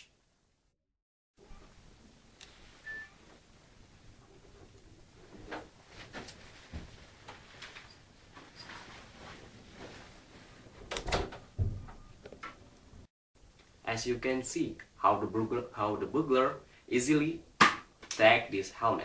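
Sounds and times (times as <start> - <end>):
shuffling and handling sounds: 4.7 - 10.8.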